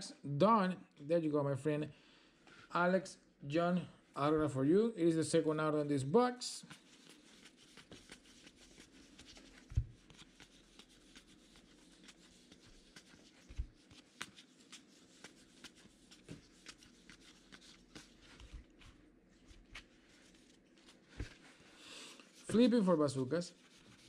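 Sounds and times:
cards sliding and ticking: 6.7 - 22.6.

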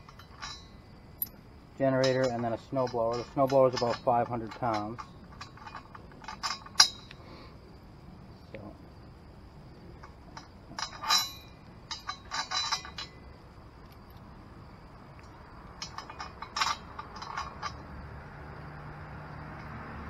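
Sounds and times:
chain clinking against metal: 0.0 - 7.2, 10.0 - 13.3, 15.7 - 18.7.

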